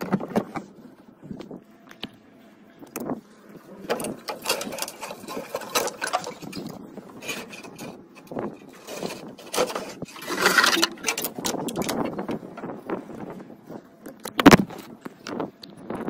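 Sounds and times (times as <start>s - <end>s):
wiring harness scraping on metal: 3.7s - 12.0s.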